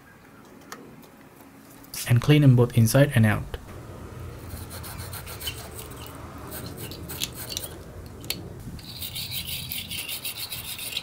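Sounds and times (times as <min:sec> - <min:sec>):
wire brush scraping metal: 0:04.4 - 0:11.0.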